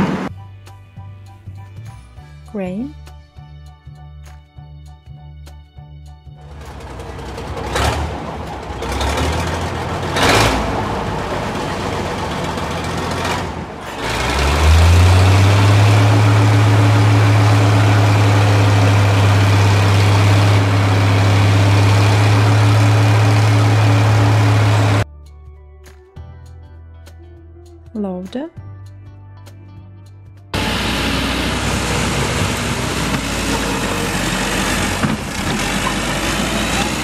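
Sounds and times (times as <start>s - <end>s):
construction site noise: 0.0s - 0.3s, 6.4s - 25.0s, 30.5s - 37.0s
crane motor humming: 6.5s - 25.0s, 30.6s - 37.0s.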